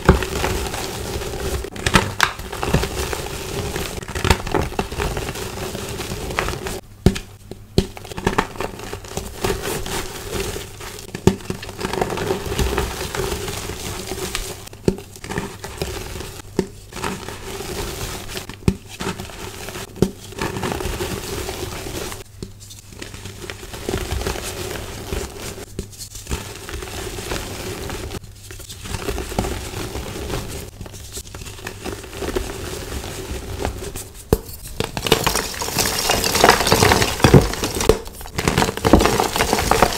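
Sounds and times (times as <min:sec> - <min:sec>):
chalk blocks crunching: 0:31.2 - 0:39.9.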